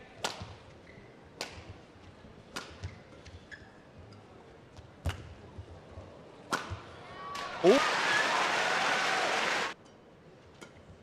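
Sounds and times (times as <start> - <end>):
low arena background: 0.0 - 11.0
shoe squeaks: 0.8 - 1.2, 2.8 - 3.9.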